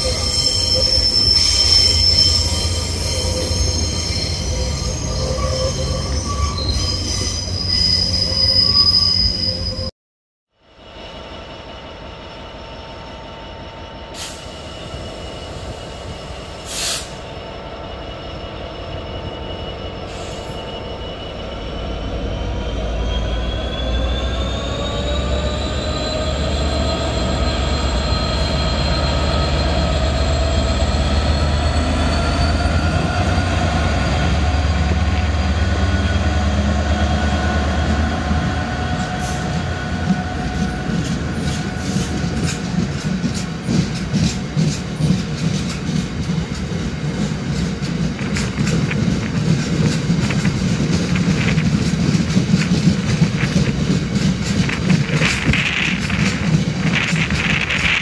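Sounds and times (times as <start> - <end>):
diesel locomotive engine passing: 10.7 - 58.0
wagons rumbling past: 32.9 - 58.0
wheels clicking over rail joints: 40.1 - 58.0.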